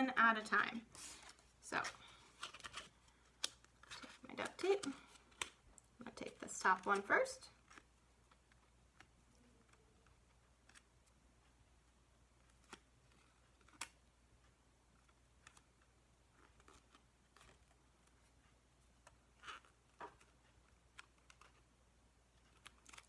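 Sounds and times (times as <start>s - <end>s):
tape and plastic crinkling: 1.0s - 10.9s, 22.3s - 23.0s.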